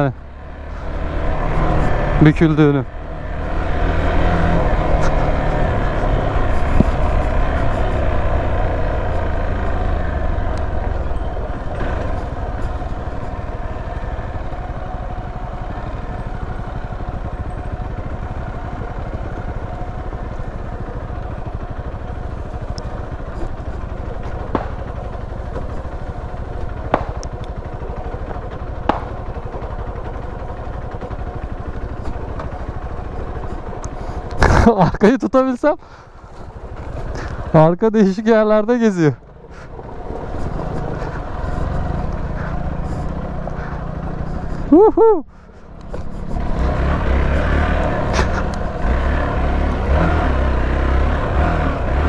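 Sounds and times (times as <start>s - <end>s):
motorcycle engine running: 0.0s - 52.0s.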